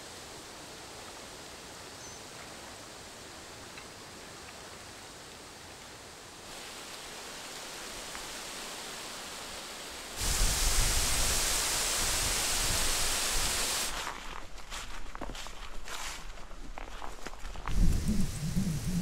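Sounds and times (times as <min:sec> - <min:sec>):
strong wind on microphone: 0:10.2 - 0:13.6, 0:17.7 - 0:19.0.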